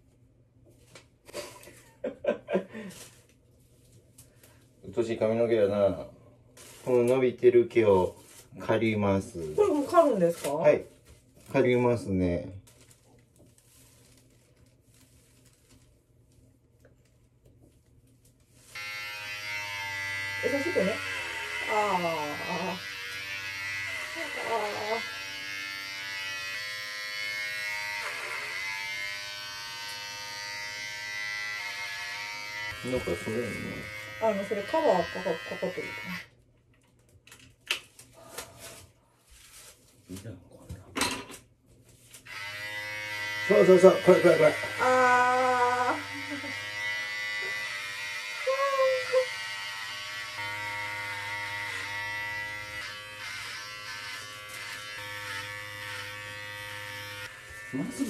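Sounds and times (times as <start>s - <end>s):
electric hair clippers buzzing: 18.7s - 36.3s, 42.3s - 58.0s.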